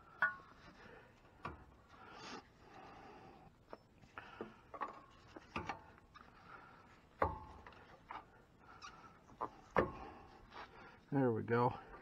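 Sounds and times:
metal clinks and knocks: 0.0 - 0.6.

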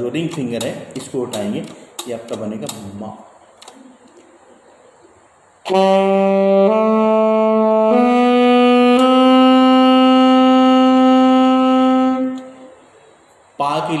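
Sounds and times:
saxophone playing a scale: 5.6 - 12.8.

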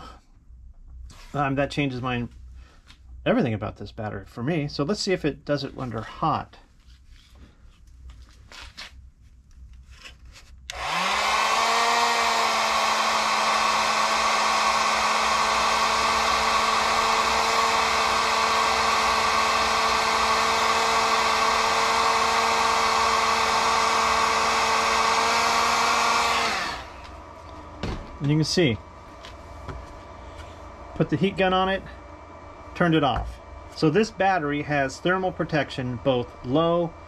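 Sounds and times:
heat gun fan whirring: 10.6 - 37.0.

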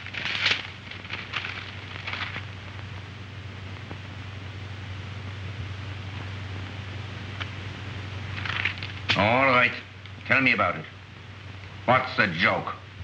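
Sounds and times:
paper rustling: 0.0 - 2.5, 8.3 - 9.2
film soundtrack hiss and hum: 0.0 - 13.0.

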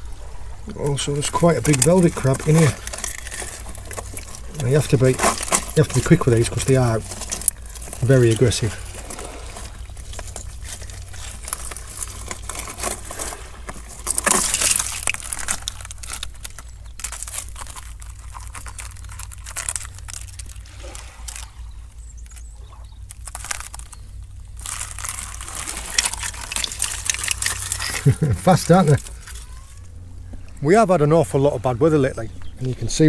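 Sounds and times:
water trickling and splashing: 0.0 - 30.7
clicks and scrapes on stone: 1.6 - 8.4.

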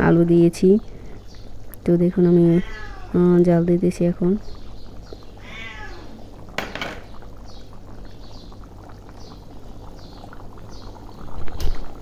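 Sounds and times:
curry bubbling in a pan: 0.3 - 12.0.

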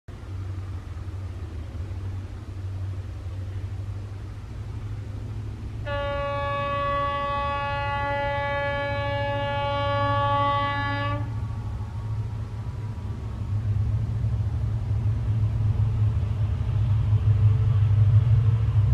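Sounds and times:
locomotive engine rumbling: 0.1 - 18.9
long train horn blast: 5.8 - 11.5.

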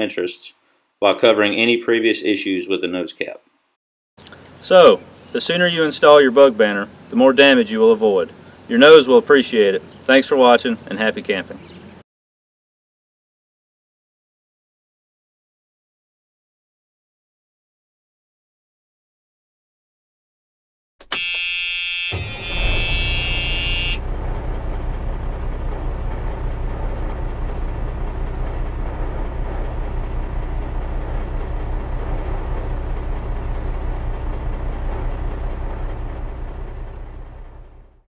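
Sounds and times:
large engine rumbling: 4.2 - 12.0, 22.2 - 38.0
vehicle horn: 21.1 - 24.1.

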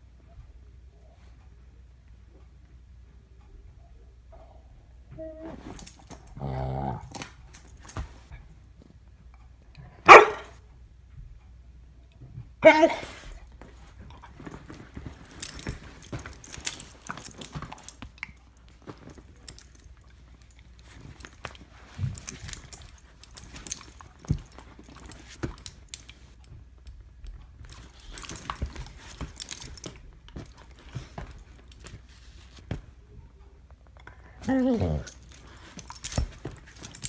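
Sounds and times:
collar tag jingling: 12.7 - 26.4, 27.6 - 32.6, 34.4 - 37.0.

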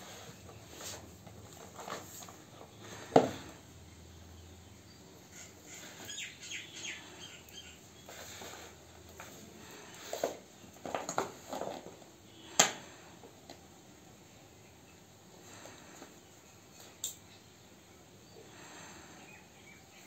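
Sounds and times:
bird chirps: 4.4 - 8.1.

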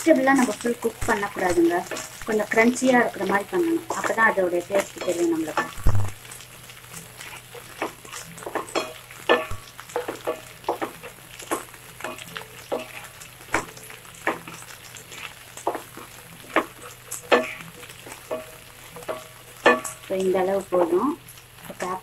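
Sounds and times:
onions sizzling in a pan: 0.0 - 22.0
spatula scraping a pan: 1.4 - 20.1.

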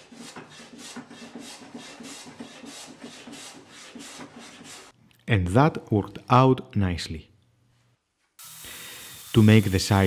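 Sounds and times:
hand plane shaving wood: 0.0 - 4.9.

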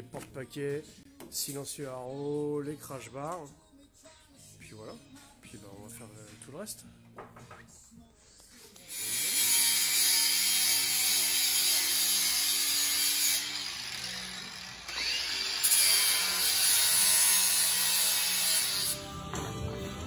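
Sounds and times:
angle grinder grinding steel: 8.8 - 19.1.

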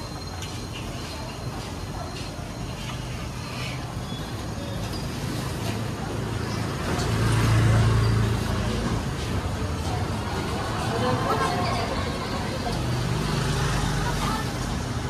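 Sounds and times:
street noise: 0.0 - 15.0
vehicle engine rumbling past: 3.7 - 15.0.

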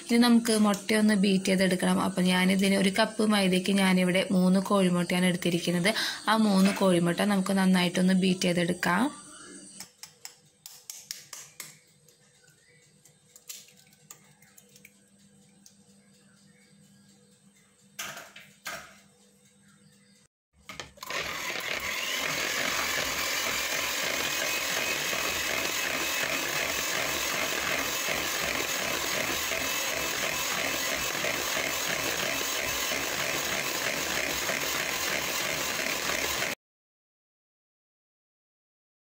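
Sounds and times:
electric hand mixer whirring: 20.7 - 36.6.

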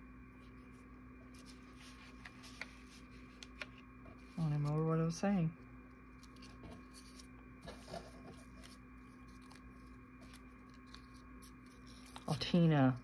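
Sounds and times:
faint electrical hum: 0.0 - 13.0
paper rustling: 1.3 - 4.9, 6.1 - 12.7.

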